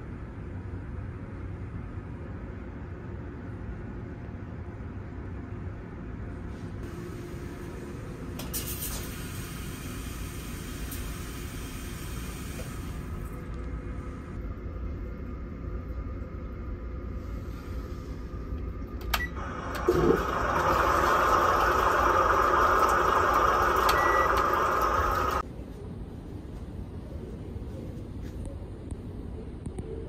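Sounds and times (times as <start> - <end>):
low steady hum: 0.0 - 30.0
recorded rushing water from speaker: 19.4 - 25.4
beep: 23.9 - 24.4.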